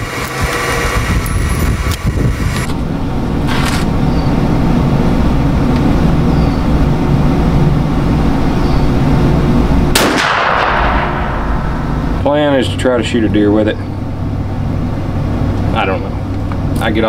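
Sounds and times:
vehicle engine running: 0.0s - 17.0s
sudden burst of noise: 9.9s - 13.0s.

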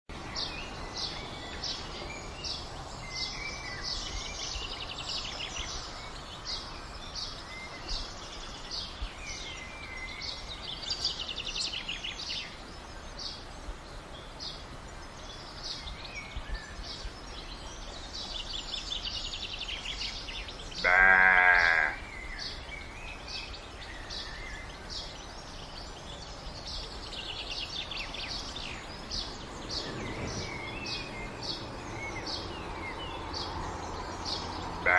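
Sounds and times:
songbirds chirping and trilling: 0.1s - 34.9s
sheep bleating: 20.8s - 22.0s.

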